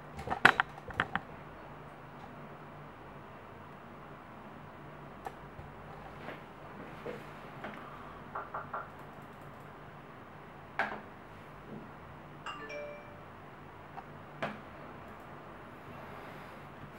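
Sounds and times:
low steady hum: 0.0s - 16.9s
electronic chime: 12.5s - 13.3s.

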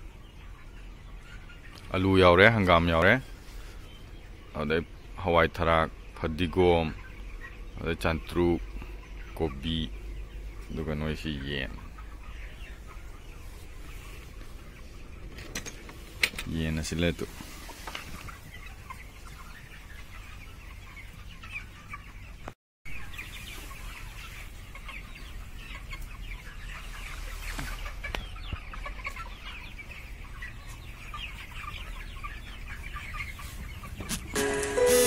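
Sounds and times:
chickens cheeping and clucking: 0.0s - 35.0s
music: 34.4s - 35.0s.

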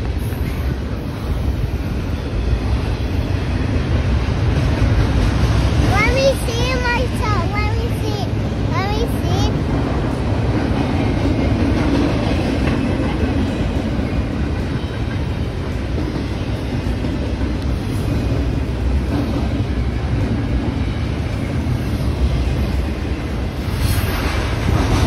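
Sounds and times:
freight train wheels rumbling on track: 0.0s - 25.0s.

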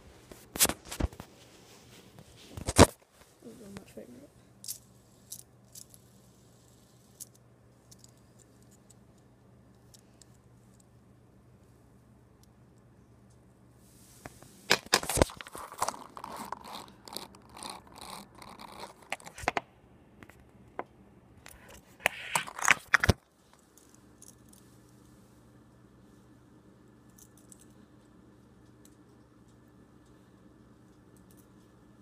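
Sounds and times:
faint hiss: 13.7s - 14.7s
phone handling rustling: 14.7s - 17.4s, 22.0s - 23.2s.

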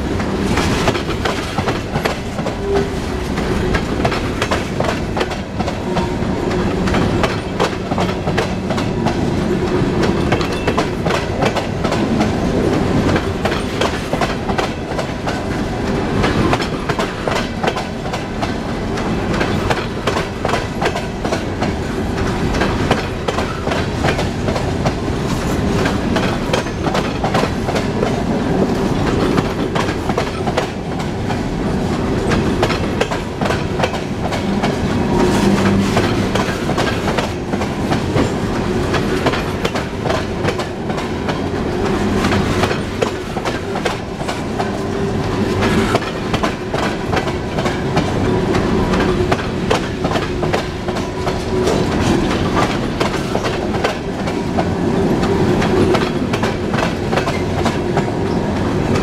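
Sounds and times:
steady train rumble: 0.0s - 59.0s
train wheels clicking over rail joints: 0.1s - 59.0s.

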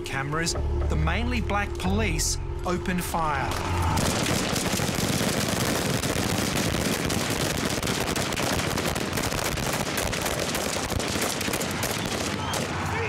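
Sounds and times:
rapid rifle gunfire: 4.0s - 12.9s.

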